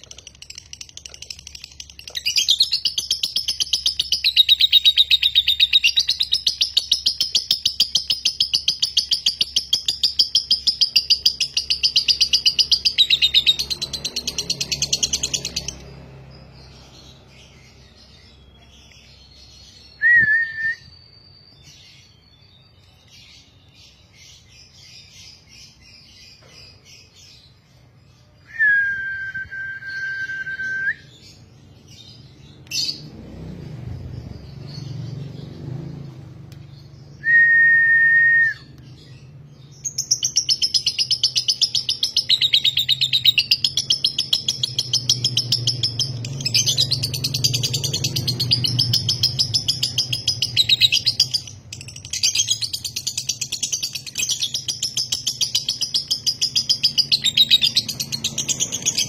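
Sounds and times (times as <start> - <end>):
lovebird chirping and chattering: 0.0 - 20.0, 21.0 - 28.4, 31.0 - 37.2, 38.7 - 59.0
held whistle notes: 20.0 - 21.1, 28.5 - 31.1, 37.2 - 38.8.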